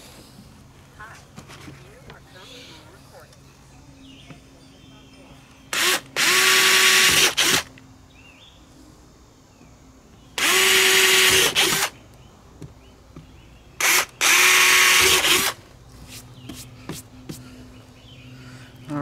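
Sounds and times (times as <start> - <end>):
cordless drill boring fiberglass: 5.8 - 7.7, 10.4 - 11.9, 13.8 - 15.6.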